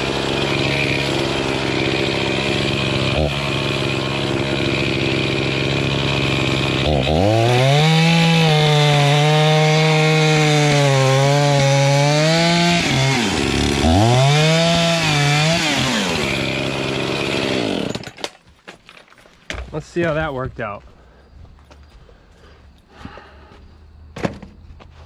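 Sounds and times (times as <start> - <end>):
chainsaw cutting wood: 0.0 - 18.4.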